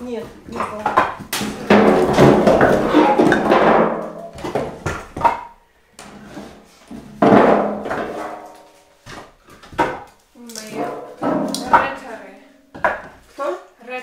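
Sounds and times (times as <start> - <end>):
firewood clattering: 0.4 - 5.6, 6.9 - 13.3
wooden knocks: 9.1 - 10.1, 10.7 - 13.2.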